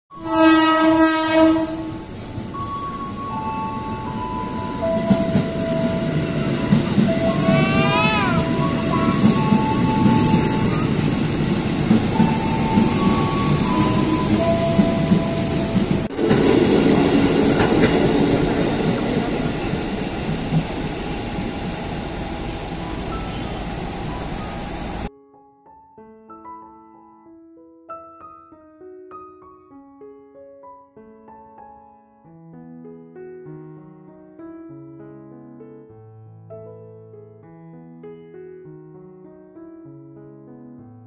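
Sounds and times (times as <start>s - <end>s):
train horn: 0.1s - 2.1s, 5.0s - 11.2s
train rumbling in: 1.6s - 25.1s.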